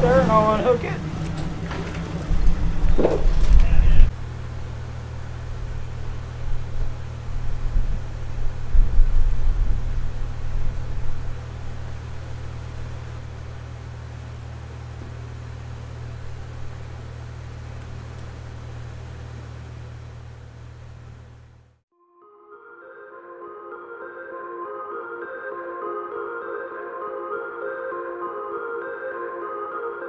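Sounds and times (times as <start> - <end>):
car engine running slowly: 0.0 - 21.8
heavy uneven rumbling: 0.0 - 21.8.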